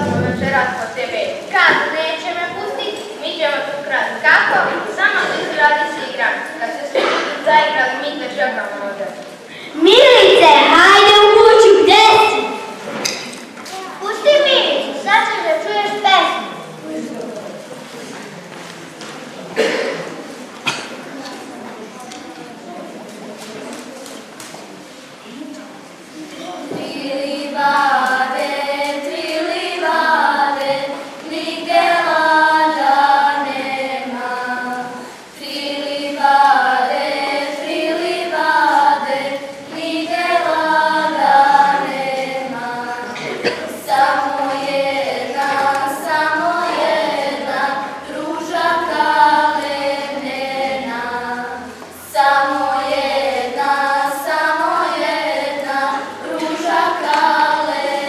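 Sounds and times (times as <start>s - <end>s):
girls singing in unison: 26.7s - 58.0s.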